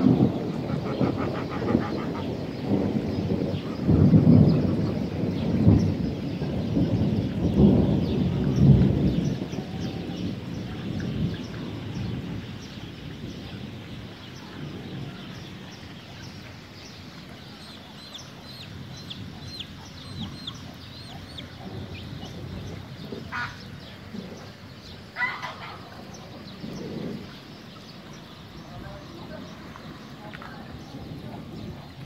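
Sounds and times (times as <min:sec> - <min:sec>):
rolling thunder: 0:00.0 - 0:32.0
steady rain: 0:00.0 - 0:32.0
small bird chirping: 0:15.4 - 0:23.5
chickens clucking: 0:16.0 - 0:23.7, 0:25.2 - 0:26.4.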